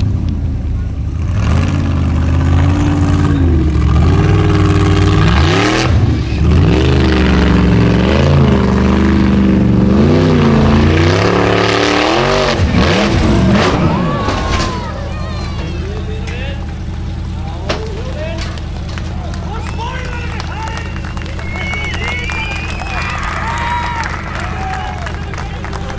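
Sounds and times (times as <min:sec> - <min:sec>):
buggy engine revving: 0:00.0 - 0:25.9
tyres throwing dirt: 0:09.9 - 0:23.9.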